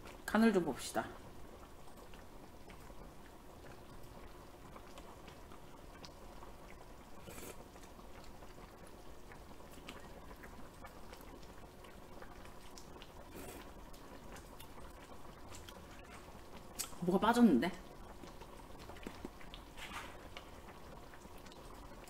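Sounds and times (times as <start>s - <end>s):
stew bubbling in a pot: 0.0s - 22.0s.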